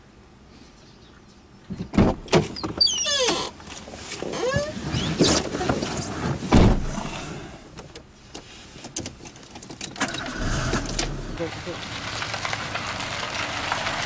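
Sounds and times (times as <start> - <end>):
clothing and seat rustling: 3.1 - 7.4
car door shutting: 6.5 - 7.2, 10.0 - 11.5.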